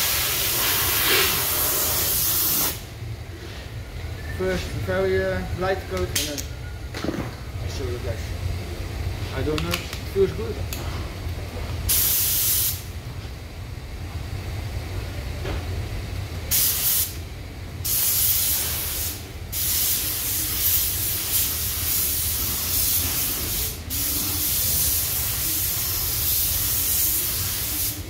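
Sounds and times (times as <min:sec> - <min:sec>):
spray gun hissing: 0:00.0 - 0:02.8, 0:11.9 - 0:12.9, 0:16.5 - 0:17.2, 0:17.8 - 0:28.0.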